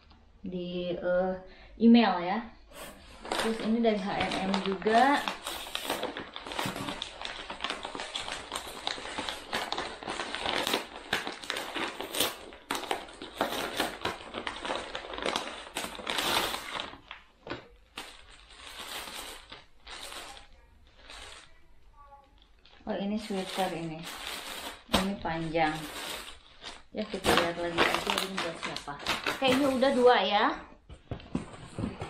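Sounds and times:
paper bag tearing and crumpling: 2.8 - 17.2, 17.9 - 21.6, 23.2 - 30.2.

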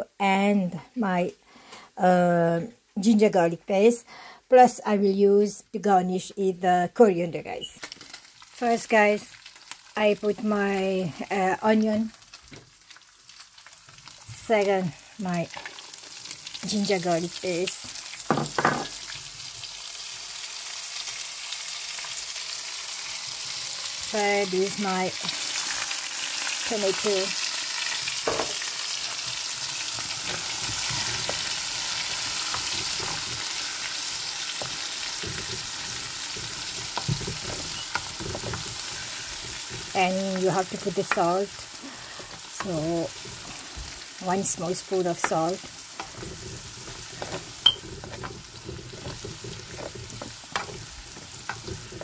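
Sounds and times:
oil sizzling in frying pan: 7.8 - 52.0
spatula scraping pan: 27.9 - 52.0.

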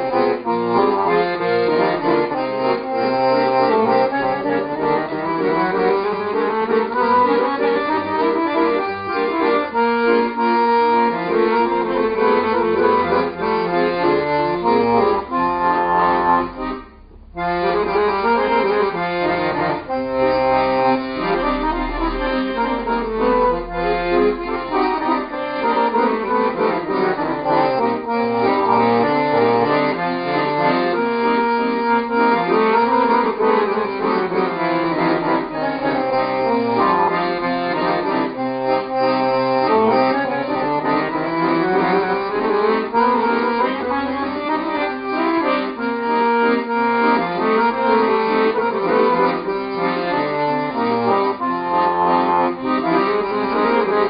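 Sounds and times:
piano accordion playing solo: 0.0 - 54.0.

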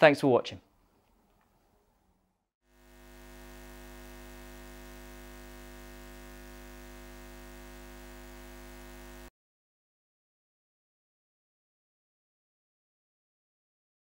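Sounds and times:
electrical hum with overtones: 2.7 - 9.3.

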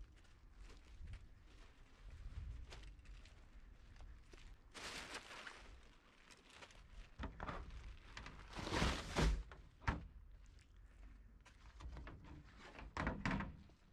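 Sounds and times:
clattering rustling thud: 8.4 - 9.5.

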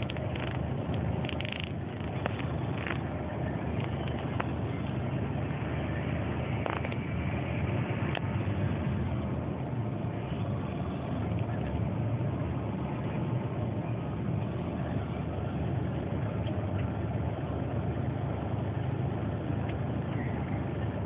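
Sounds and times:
faint clicks and rattles: 0.0 - 3.1
bus engine droning: 0.0 - 21.0
road noise: 0.0 - 21.0.

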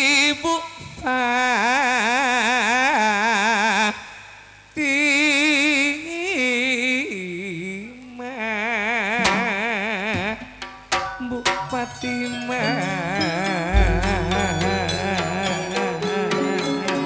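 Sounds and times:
person singing with vibrato: 11.2 - 17.0.

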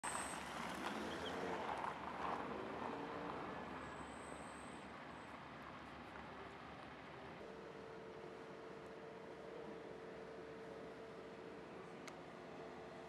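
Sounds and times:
passing traffic rushing: 0.0 - 5.6.

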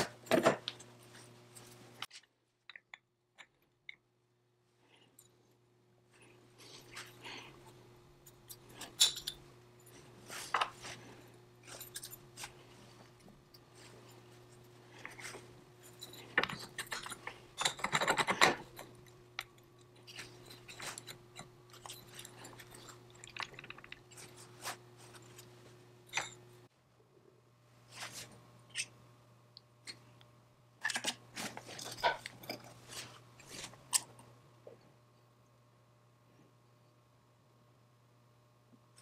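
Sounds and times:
faint steady hum: 0.0 - 39.0
small metal parts clinking: 8.2 - 10.0, 11.7 - 12.2.

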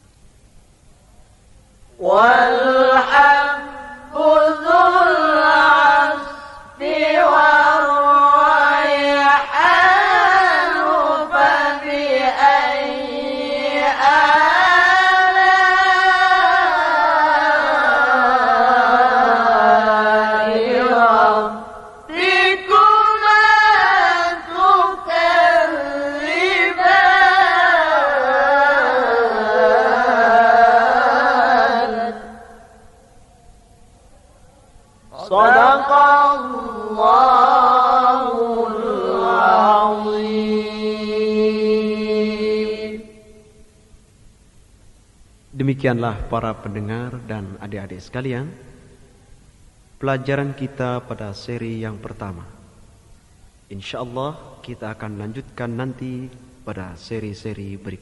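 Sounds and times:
man reciting melodically: 35.1 - 43.1, 45.5 - 48.8, 50.0 - 52.6, 53.7 - 58.0.

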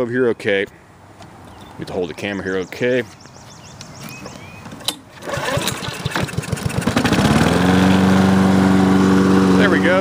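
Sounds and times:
lawn mower engine starting: 4.7 - 10.0.

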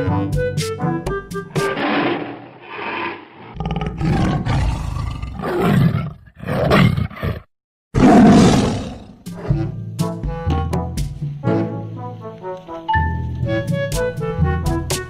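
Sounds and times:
tiger roaring: 1.5 - 9.7
music with held notes: 9.6 - 15.0.

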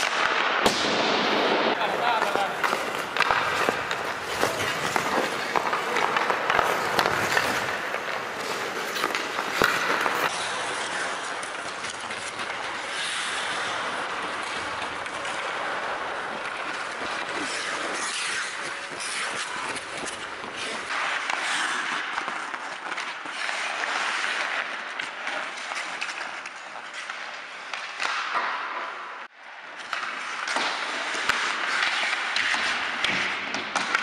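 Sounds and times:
skate blades scraping on ice: 1.5 - 34.0
hockey stick clicking on puck: 2.2 - 29.0, 29.7 - 34.0.

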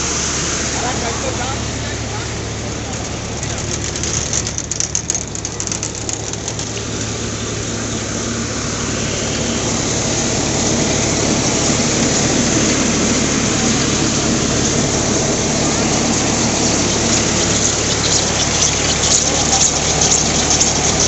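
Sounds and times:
tractor diesel engine under load: 0.0 - 21.0
grain rattling through machine: 2.6 - 7.4, 9.7 - 21.0
sharp clicks: 2.9 - 6.9.

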